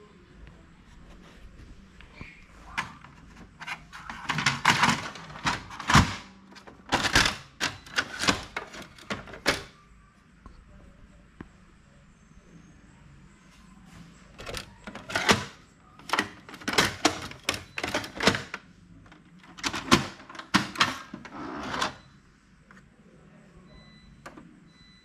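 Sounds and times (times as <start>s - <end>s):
printer tray plastic clacks: 2.7s - 9.7s.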